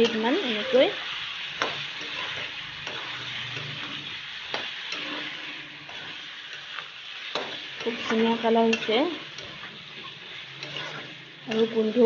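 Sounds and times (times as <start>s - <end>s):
food sizzling in a pan: 0.0s - 12.0s
metal spatula scraping pan: 1.4s - 12.0s.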